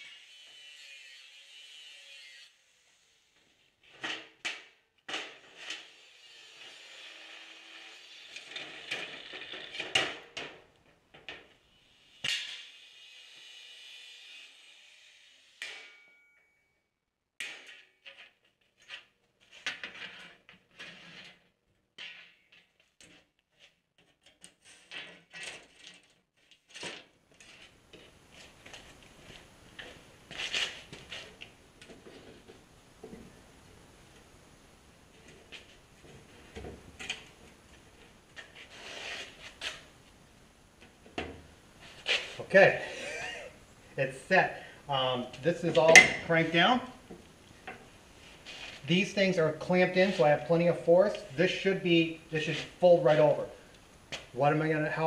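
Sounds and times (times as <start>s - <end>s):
angle grinder cutting steel: 0.0s - 3.0s, 5.8s - 9.2s, 11.9s - 15.7s.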